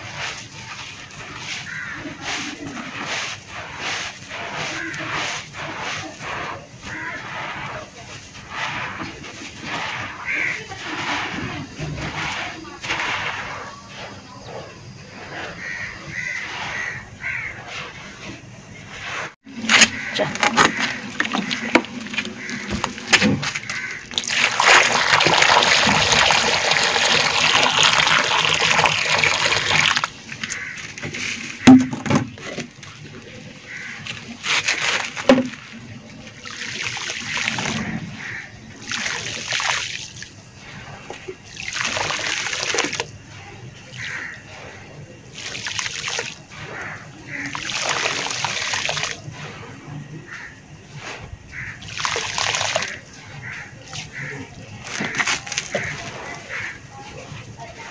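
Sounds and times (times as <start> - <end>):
hands scraping dry powder: 0.0 - 24.8
dust sifting through fingers: 0.0 - 31.7
water pouring and bubbling: 0.0 - 50.1, 51.6 - 57.9.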